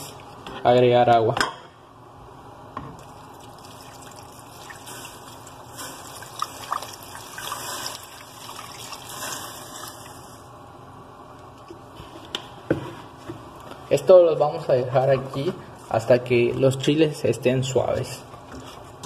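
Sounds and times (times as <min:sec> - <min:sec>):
water pouring into a saucepan: 0:03.0 - 0:10.4.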